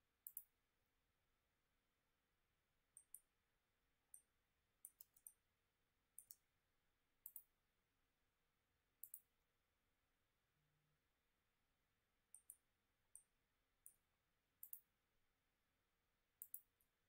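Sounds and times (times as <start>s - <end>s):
computer mouse clicks: 0.2s - 0.5s, 3.0s - 3.3s, 4.1s - 5.4s, 6.2s - 6.4s, 7.2s - 7.5s, 9.0s - 9.3s, 12.3s - 12.6s, 14.6s - 14.9s, 16.4s - 16.8s.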